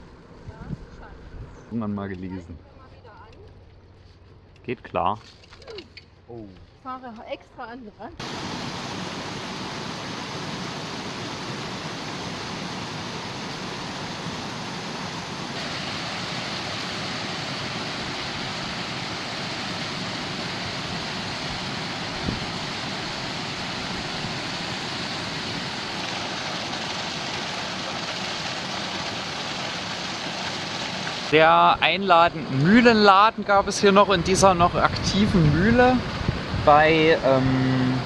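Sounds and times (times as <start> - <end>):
water rushing over a weir: 8.2 - 33.3.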